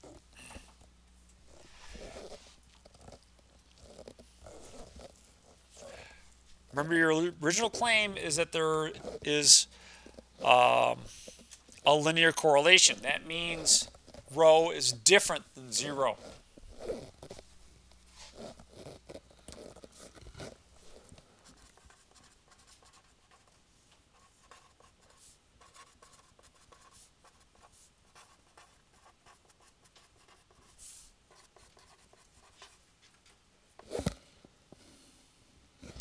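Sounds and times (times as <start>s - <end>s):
pen scratching paper: 3.8s - 5.2s, 8.9s - 9.5s, 12.9s - 14.3s, 15.8s - 17.5s, 18.2s - 23.6s, 24.2s - 32.8s.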